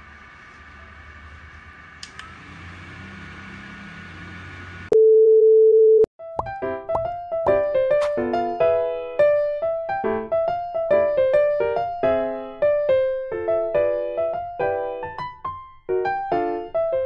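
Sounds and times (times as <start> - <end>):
neckband fan whirring: 0.0 - 4.9
plucked piano-like music: 6.2 - 17.0.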